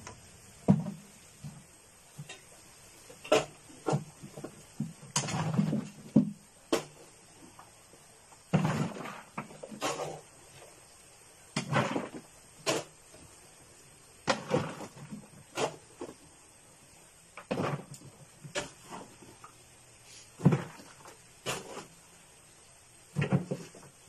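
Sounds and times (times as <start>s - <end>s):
knocks and thuds: 0.6s - 1.6s, 3.3s - 7.0s, 20.4s - 21.7s, 23.1s - 23.9s.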